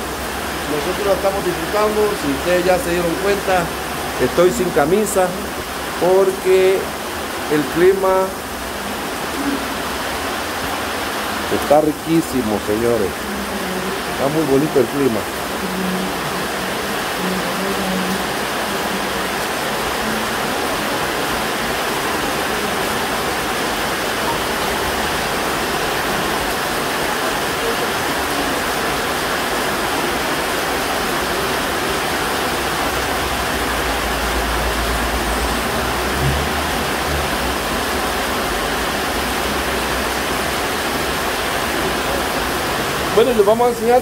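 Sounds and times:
heavy rain: 0:00.0 - 0:44.0.

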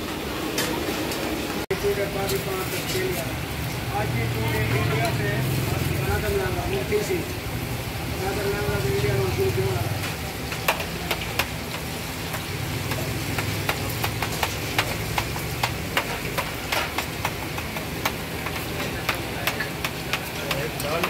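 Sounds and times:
deep-frying in oil: 0:00.0 - 0:21.0
metal spatula tapping pan: 0:10.0 - 0:21.0.

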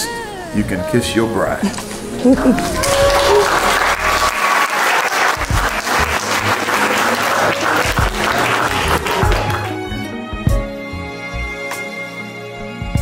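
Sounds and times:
crowd clapping: 0:02.3 - 0:10.1.

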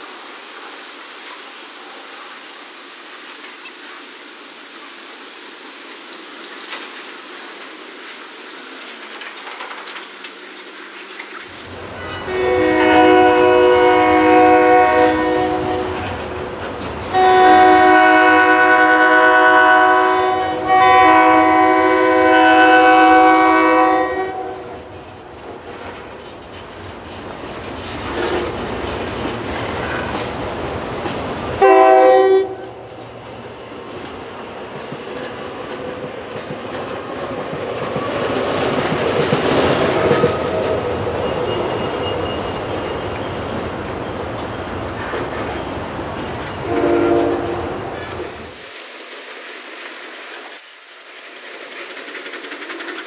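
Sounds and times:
freight train cars clattering: 0:06.0 - 0:48.6, 0:49.6 - 0:53.0
train horn blasts: 0:12.0 - 0:16.4, 0:17.1 - 0:24.9, 0:31.6 - 0:32.9, 0:46.6 - 0:47.8.

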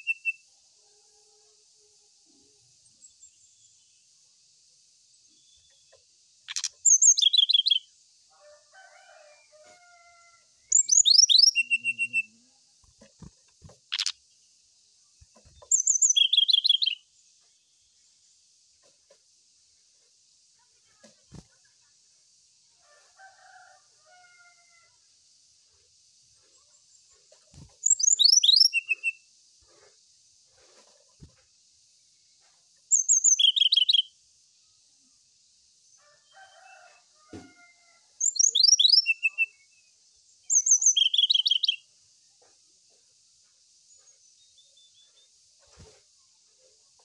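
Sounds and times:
bird singing whistled notes: 0:00.0 - 0:00.4, 0:06.5 - 0:07.9, 0:10.7 - 0:12.4, 0:15.7 - 0:17.0, 0:27.8 - 0:29.2, 0:32.9 - 0:34.1, 0:38.2 - 0:41.8.

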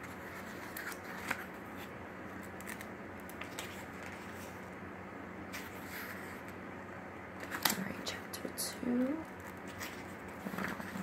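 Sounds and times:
fingers rustling book pages: 0:00.0 - 0:04.7, 0:05.5 - 0:06.6, 0:09.3 - 0:11.0
low room hum: 0:00.0 - 0:11.0.

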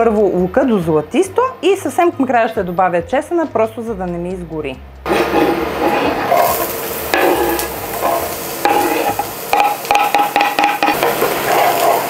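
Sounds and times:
onion sizzling in a frying pan: 0:05.1 - 0:12.0
utensil stirring and scraping pan: 0:05.1 - 0:12.0.

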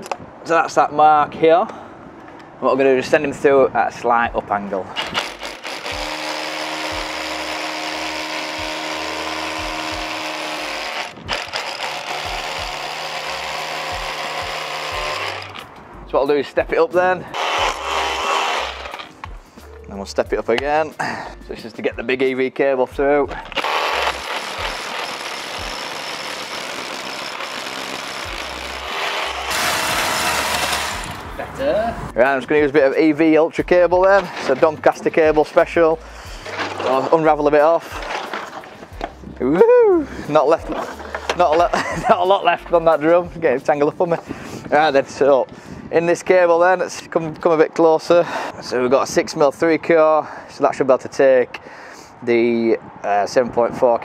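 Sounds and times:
hammer drill boring into brick: 0:05.0 - 0:15.6, 0:17.3 - 0:19.2, 0:23.4 - 0:31.2.

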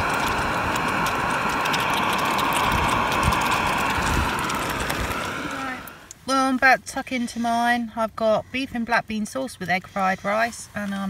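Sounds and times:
gas burner rushing: 0:00.0 - 0:06.3.

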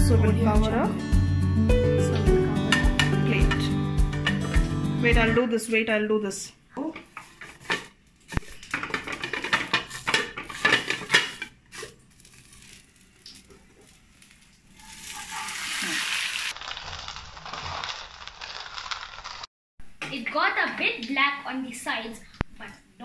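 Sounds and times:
plate scraping frying pan: 0:07.0 - 0:12.8
butter sizzling: 0:07.1 - 0:19.5.

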